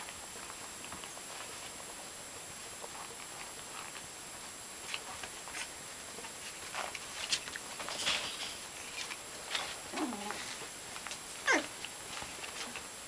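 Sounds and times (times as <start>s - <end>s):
puppy yelping: 11.4s - 11.7s.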